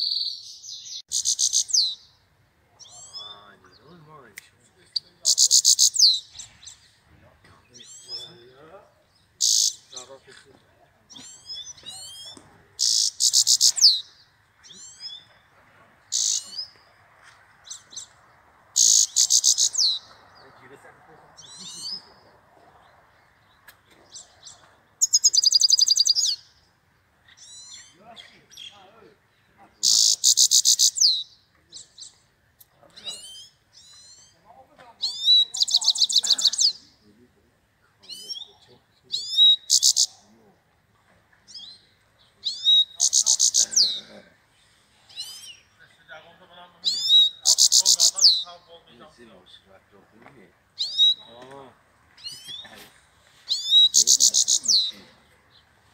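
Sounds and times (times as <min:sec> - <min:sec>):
goldfinch singing: 0:00.0 - 0:02.2, 0:04.8 - 0:07.0, 0:07.6 - 0:10.2, 0:11.1 - 0:15.4, 0:16.1 - 0:16.9, 0:17.6 - 0:20.5, 0:23.3 - 0:26.6, 0:29.8 - 0:32.2, 0:35.0 - 0:37.0, 0:38.0 - 0:40.2, 0:41.5 - 0:44.0, 0:46.8 - 0:49.0, 0:50.8 - 0:51.4, 0:52.2 - 0:52.8, 0:53.5 - 0:55.7.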